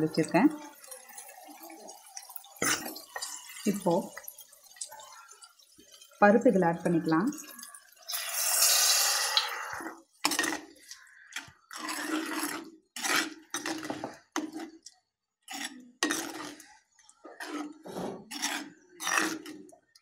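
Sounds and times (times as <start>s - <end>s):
steel ladle scraping clay pot: 6.9s - 14.6s, 15.5s - 16.7s, 17.3s - 19.7s.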